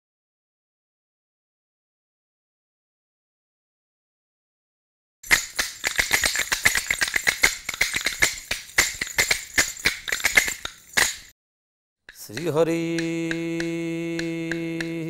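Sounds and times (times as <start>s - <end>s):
wooden clappers clacking: 5.3s - 11.3s, 12.1s - 15.0s.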